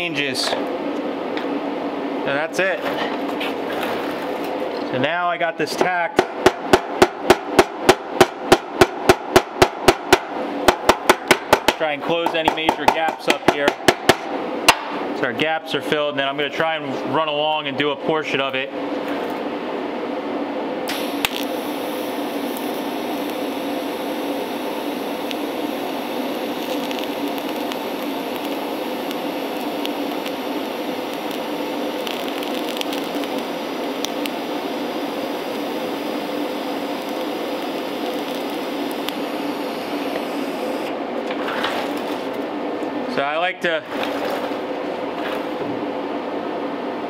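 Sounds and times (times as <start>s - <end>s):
welding arc hiss and buzz: 2.2s - 18.6s, 20.8s - 41.3s, 41.9s - 42.5s
small ticks and pops: 32.0s - 33.4s.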